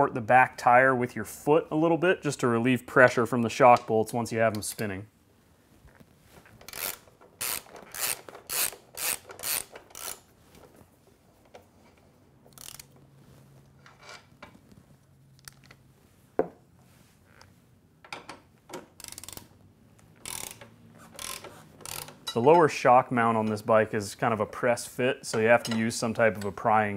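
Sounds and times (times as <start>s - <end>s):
ratchet wrench clicking: 6.7s - 10.2s, 12.5s - 13.0s, 19.0s - 19.5s, 20.2s - 22.4s.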